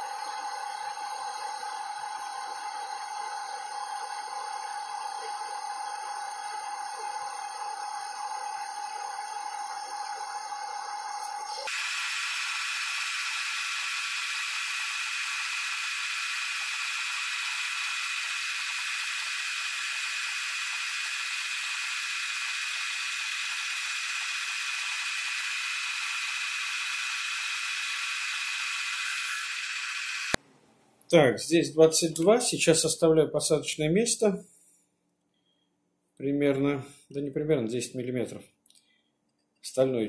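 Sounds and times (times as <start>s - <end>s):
metal lathe cutting hiss: 0.0s - 30.4s.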